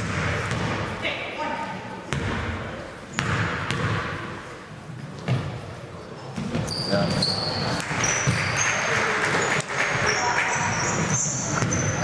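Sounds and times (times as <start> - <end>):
indistinct voices in echoing hall: 0.0 - 12.0
sneaker squeaks: 6.1 - 12.0.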